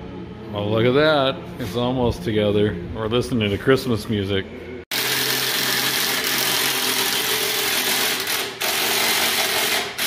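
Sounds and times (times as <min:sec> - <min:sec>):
cordless drill driving a bolt: 0:05.0 - 0:10.0.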